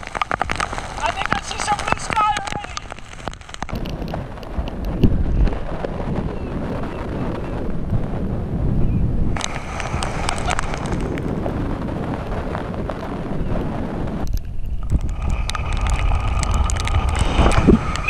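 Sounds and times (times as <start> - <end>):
water splashing: 0.0 - 4.7, 9.4 - 11.3
spray crackling on microphone: 0.0 - 5.7, 9.4 - 11.4, 14.2 - 18.0
wind buffeting microphone: 0.0 - 18.0.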